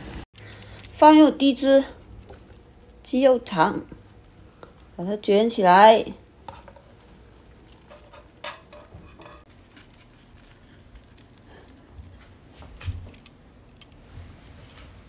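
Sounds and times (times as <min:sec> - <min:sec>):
light scrapes in a pan: 0:06.4 - 0:10.9.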